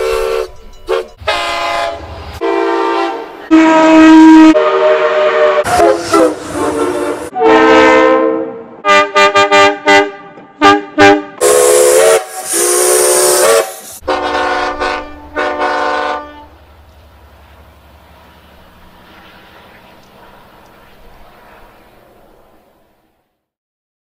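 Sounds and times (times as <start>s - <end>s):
train horn blasts: 0.0s - 16.6s
steam hissing: 11.4s - 14.1s.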